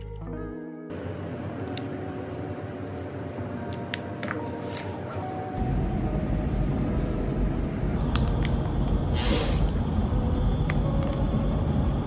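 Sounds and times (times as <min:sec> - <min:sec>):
low rumble of road vehicle: 0:05.6 - 0:12.0.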